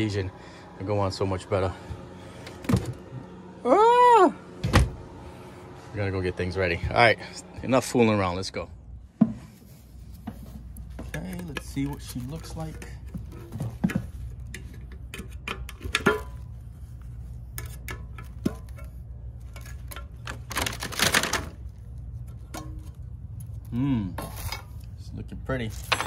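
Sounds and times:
lid pried off metal paint can: 13.9s - 16.4s.

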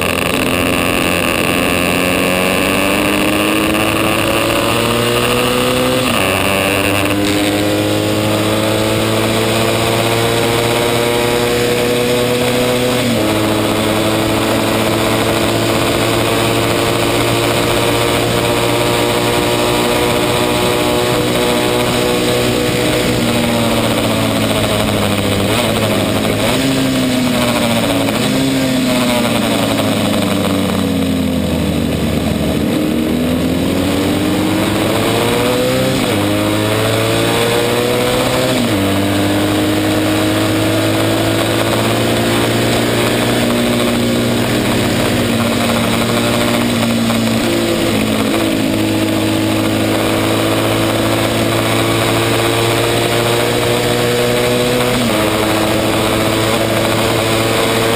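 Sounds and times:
racing motorcycle engine: 0.0s - 57.9s.

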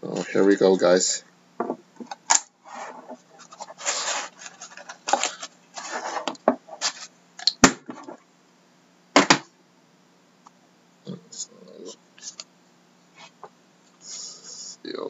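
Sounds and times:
box scraping on desk: 2.6s - 7.1s.

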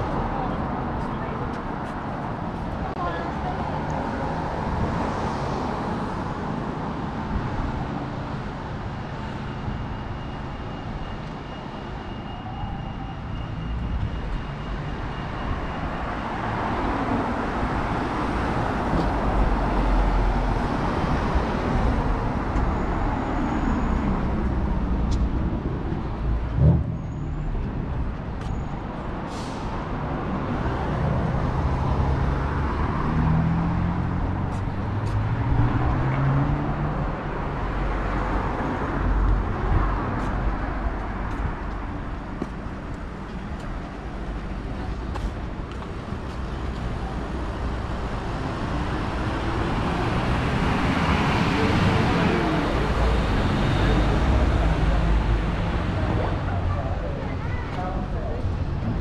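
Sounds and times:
road traffic passing: 0.0s - 59.0s.

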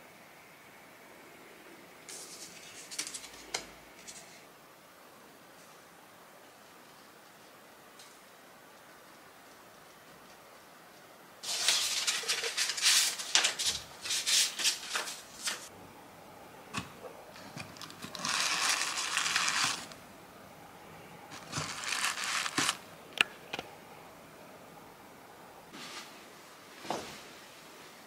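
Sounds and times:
tissue paper rustling: 11.4s - 15.7s, 17.4s - 20.0s, 21.3s - 22.8s.

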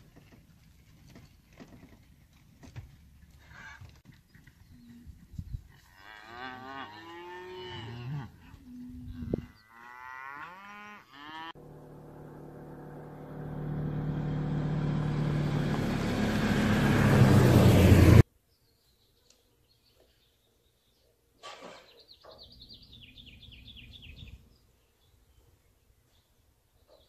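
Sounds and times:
cattle mooing: 6.0s - 12.4s.

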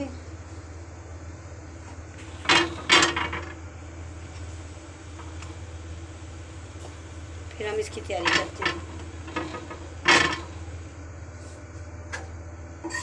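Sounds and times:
steady low hum: 0.0s - 12.9s
kitchen items clattering: 2.2s - 3.6s, 4.3s - 10.9s.

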